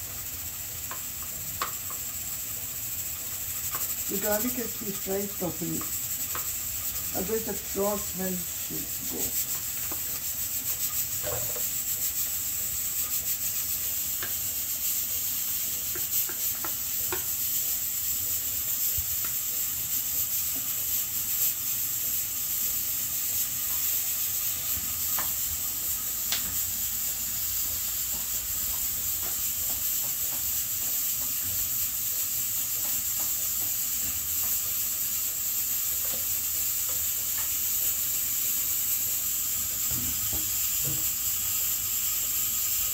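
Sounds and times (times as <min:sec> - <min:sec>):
onion sizzling in a pan: 0:00.0 - 0:42.9
spatula scraping and tapping: 0:00.9 - 0:02.1, 0:05.8 - 0:07.1, 0:09.4 - 0:10.3, 0:14.2 - 0:14.4, 0:15.8 - 0:17.4, 0:27.6 - 0:34.7.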